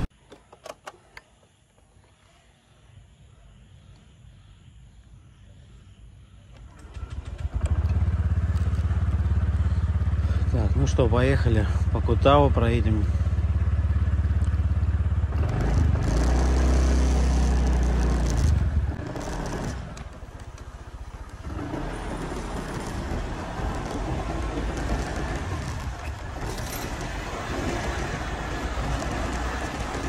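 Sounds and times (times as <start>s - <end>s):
road and wind noise: 0.0s - 1.3s, 2.8s - 30.0s
motorbike engine running: 6.7s - 30.0s.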